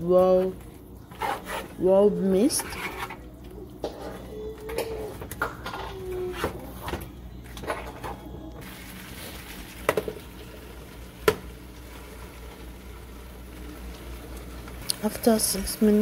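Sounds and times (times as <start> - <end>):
spoon scraping a frying pan: 2.5 - 3.2
chicken sizzling: 8.6 - 16.0.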